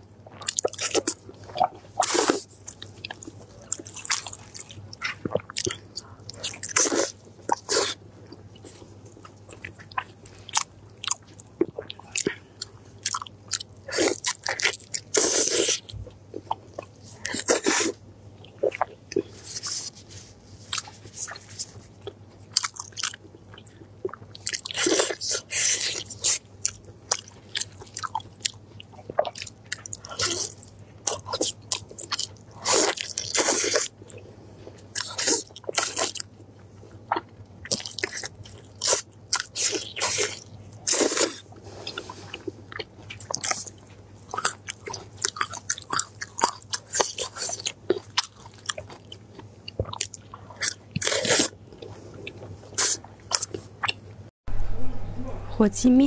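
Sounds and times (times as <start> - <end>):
meat being torn and chewed: 0.3 - 8.0, 18.6 - 34.1, 34.8 - 36.3, 37.1 - 54.0.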